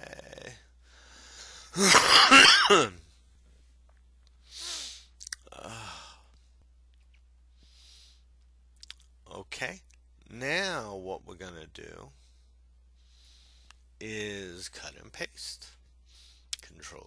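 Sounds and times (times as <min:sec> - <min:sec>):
man sighing: 0:05.5 - 0:06.3.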